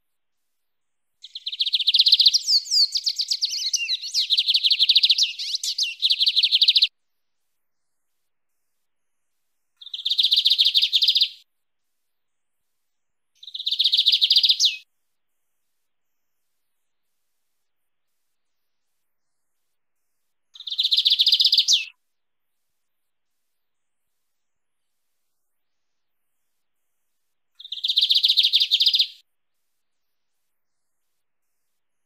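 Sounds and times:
bird singing buzzy trills: 1.2s - 6.9s.

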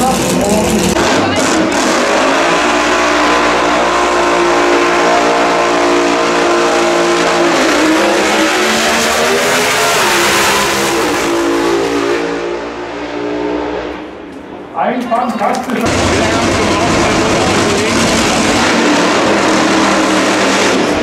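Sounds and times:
race car engine idling unevenly: 0.0s - 2.0s, 15.6s - 20.0s.

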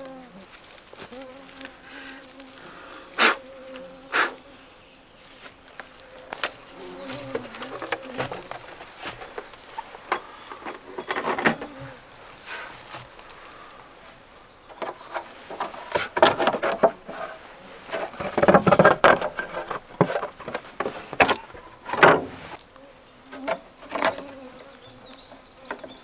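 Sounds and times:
flying insects buzzing: 0.0s - 26.0s
clicks and rustling: 5.4s - 13.8s, 14.6s - 22.4s.

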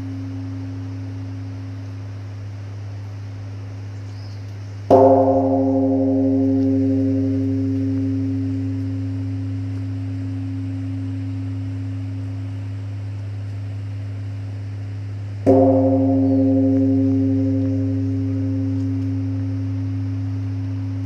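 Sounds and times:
large temple bell ringing: 0.0s - 3.1s, 4.9s - 21.0s.

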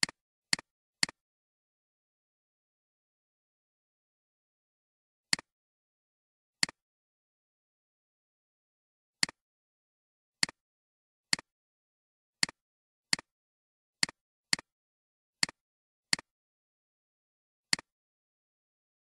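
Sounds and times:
computer mouse clicks: 15.4s - 16.3s, 17.7s - 17.9s.

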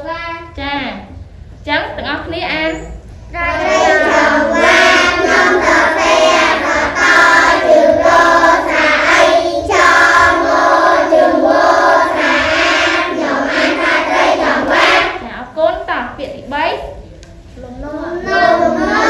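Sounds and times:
children chanting in unison: 3.3s - 15.2s, 17.8s - 19.0s.

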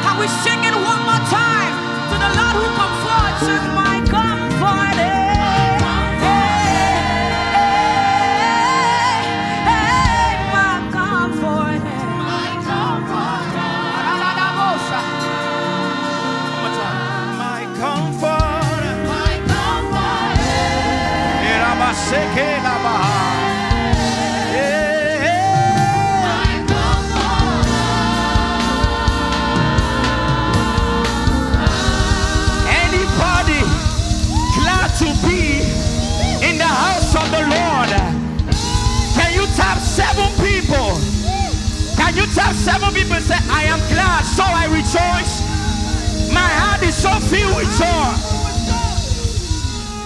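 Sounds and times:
band playing steady beat: 0.0s - 11.0s, 13.6s - 50.0s
woman singing lead: 0.0s - 37.4s
backing singers: 0.0s - 50.0s
instrumental accompaniment: 0.0s - 50.0s.

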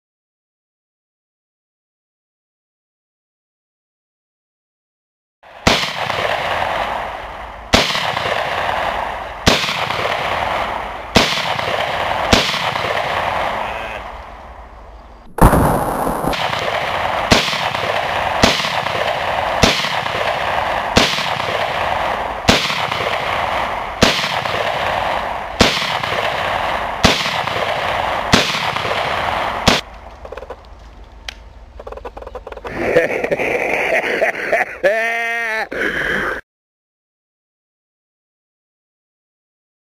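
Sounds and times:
pistol shots: 5.6s - 14.2s, 15.3s - 30.6s.

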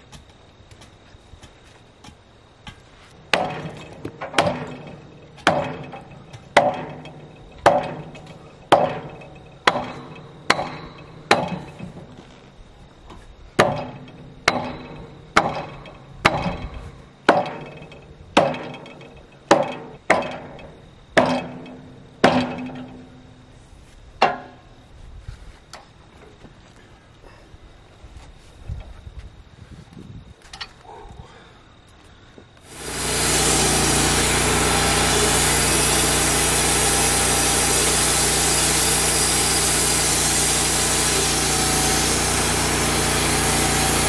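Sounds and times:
hammer striking wood: 3.3s - 11.7s, 13.6s - 16.6s, 17.3s - 17.8s, 18.4s - 20.6s, 21.2s - 22.8s.

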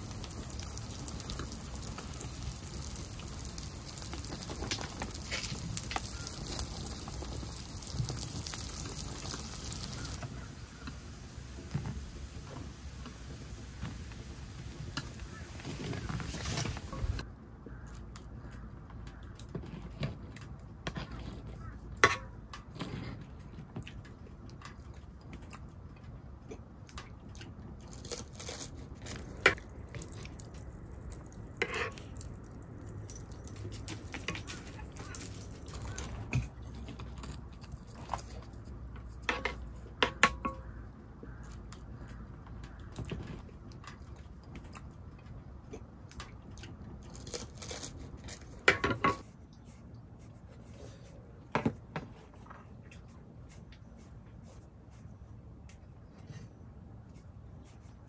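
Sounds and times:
small objects clicking and clinking: 0.0s - 10.4s.

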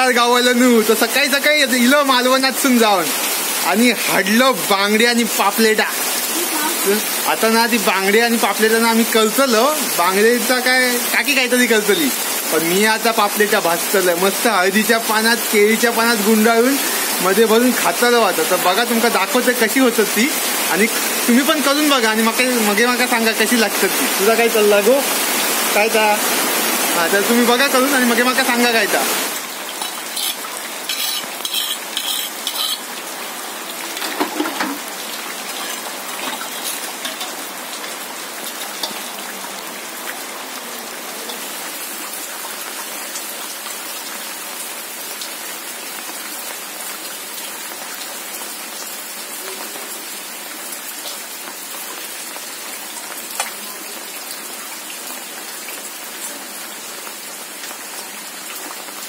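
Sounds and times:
steady rain: 0.0s - 59.0s.

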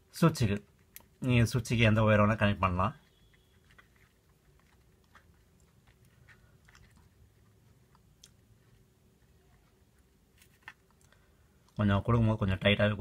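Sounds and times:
faint clicks and rustles of wire: 2.6s - 12.2s.

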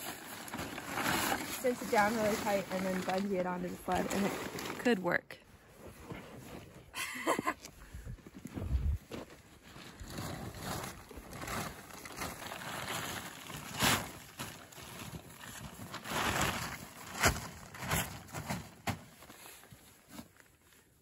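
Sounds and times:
tarp snapping crackles: 0.0s - 4.9s, 9.9s - 19.2s
plastic tarp rustling: 0.0s - 5.1s, 9.6s - 20.5s.

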